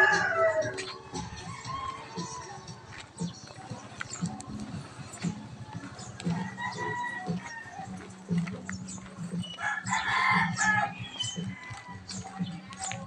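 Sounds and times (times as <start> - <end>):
rooster crowing: 0.0 - 0.8, 6.3 - 8.0, 9.6 - 11.9.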